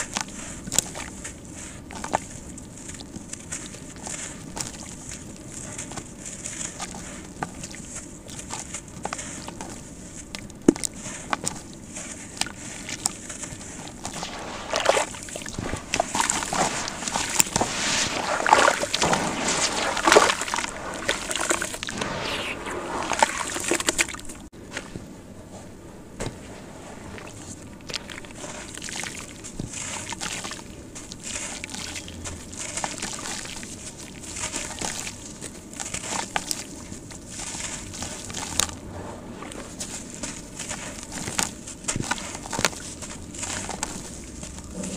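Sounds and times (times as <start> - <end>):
water sloshing: 0.0 - 24.8, 26.2 - 44.9
sand cement falling into water: 12.8 - 24.4.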